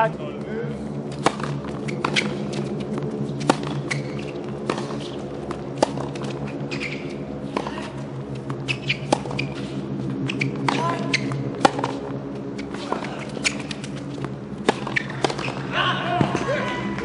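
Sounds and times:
steady low hum: 0.0s - 17.0s
tennis ball struck by racket: 1.1s - 2.8s, 3.4s - 7.9s, 8.7s - 9.7s, 10.3s - 12.0s, 12.6s - 15.6s
tennis ball bouncing: 1.1s - 17.0s.

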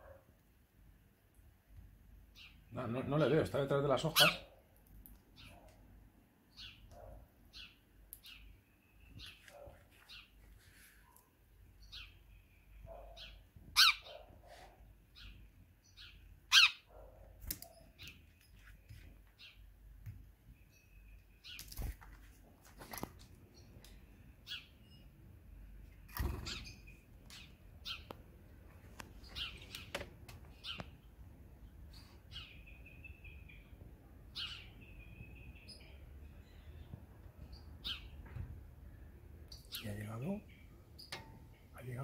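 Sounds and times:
sparrows chirping: 2.2s - 5.7s, 6.4s - 22.0s, 23.4s - 42.0s.

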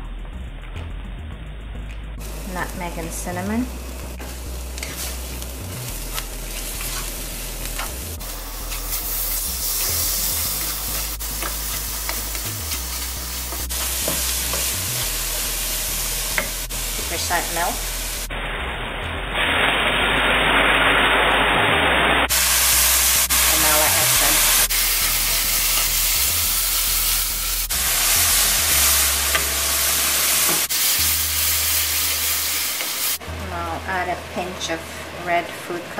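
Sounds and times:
food sizzling in a wok: 2.2s - 33.2s
wooden spoon scraping: 4.2s - 5.5s, 6.1s - 8.0s
spatula scraping in a wok: 4.2s - 15.4s.

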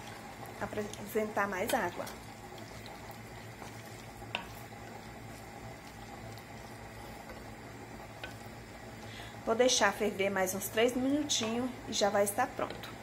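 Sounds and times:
spoon stirring pot: 0.0s - 9.1s
food bubbling in a pot: 0.0s - 13.0s.

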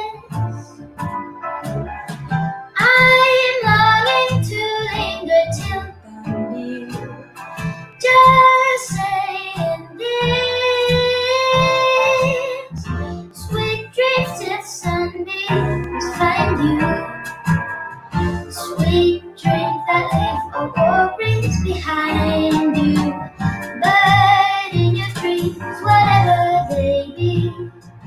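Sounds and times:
instrumental accompaniment: 0.0s - 28.0s
boy singing: 2.8s - 7.2s, 8.0s - 12.8s, 13.4s - 17.2s, 18.6s - 23.2s, 23.8s - 27.7s.

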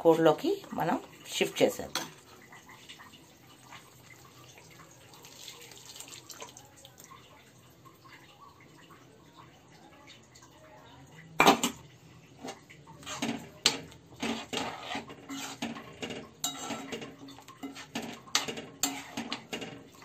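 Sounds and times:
spoon scraping metal pan: 12.4s - 20.0s.

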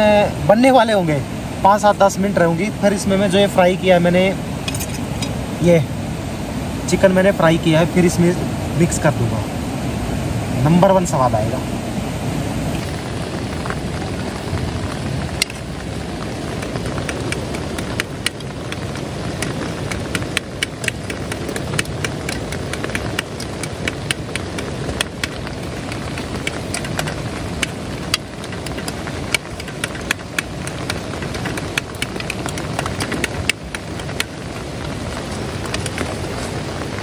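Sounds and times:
sharp taps from stirring: 26.1s - 34.3s.

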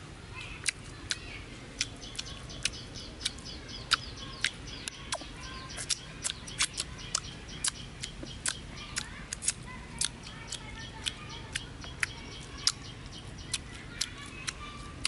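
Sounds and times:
birds chirping: 0.3s - 15.0s
wet mouth clicks and lip smacks: 0.6s - 1.2s, 1.8s - 12.8s.

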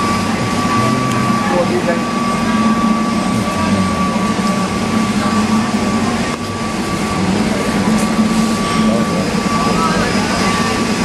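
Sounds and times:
steady mechanical drone: 0.0s - 11.0s
thin high tone: 0.0s - 11.0s.

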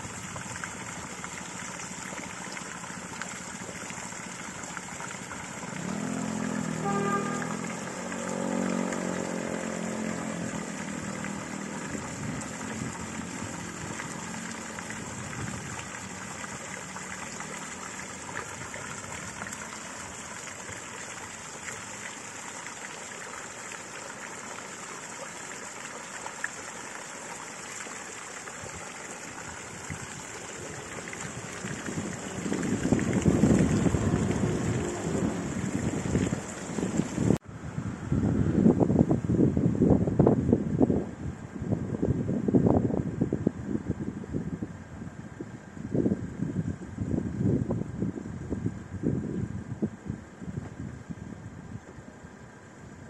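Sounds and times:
steady traffic hiss: 0.0s - 40.6s
passing vehicle engine hum: 5.5s - 15.0s, 31.4s - 38.7s.

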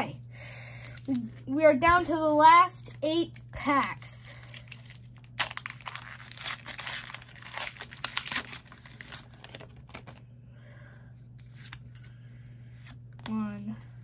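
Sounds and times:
foil wrapper crinkling and tearing: 3.3s - 10.2s.

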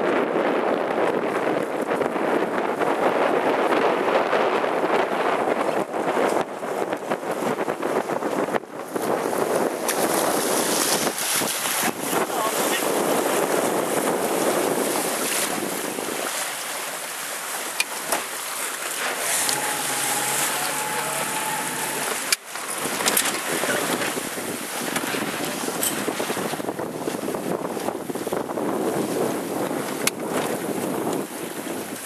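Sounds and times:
wind buffeting microphone: 0.0s - 32.0s
water rushing past boat: 0.4s - 32.0s
faint steady tone: 19.3s - 22.4s.

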